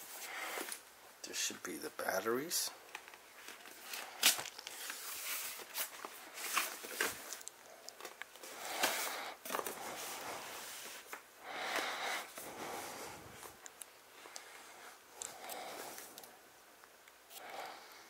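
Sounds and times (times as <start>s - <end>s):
packing rustling and scraping: 2.9s - 13.6s.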